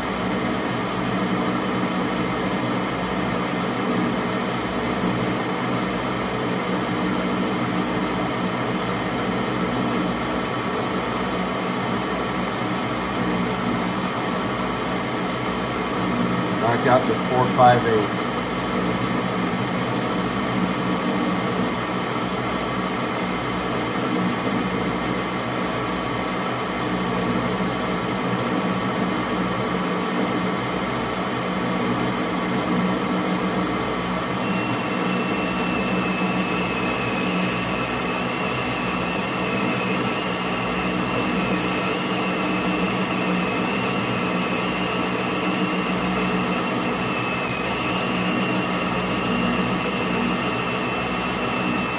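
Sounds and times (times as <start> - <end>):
thin high whine and hiss: 33.1 - 51.9
metal lathe humming: 33.8 - 51.9.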